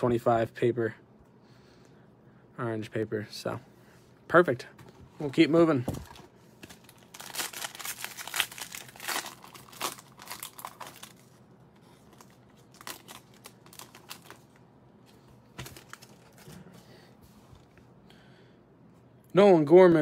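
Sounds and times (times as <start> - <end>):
foil wrapper tearing and crinkling: 6.6 - 11.4, 12.0 - 14.6, 15.6 - 16.5.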